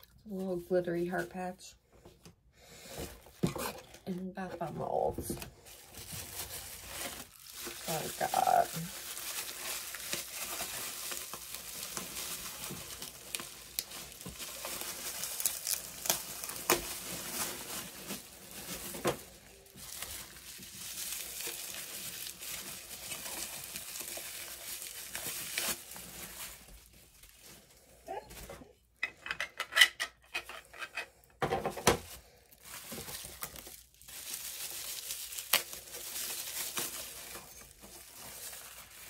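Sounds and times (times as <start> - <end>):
packaging crinkling: 5.3 - 28.5, 31.7 - 39.0.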